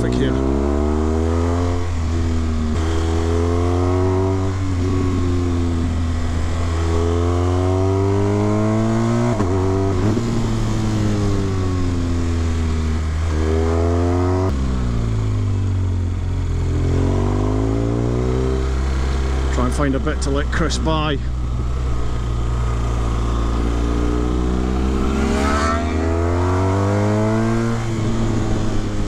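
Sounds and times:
motorcycle engine accelerating: 0.0 - 29.0
wind rush: 21.4 - 29.0.

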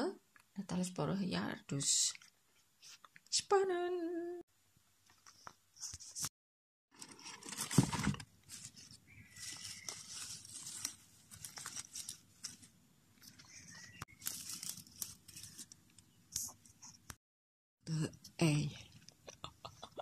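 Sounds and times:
hands rustling plant leaves: 7.0 - 16.8.

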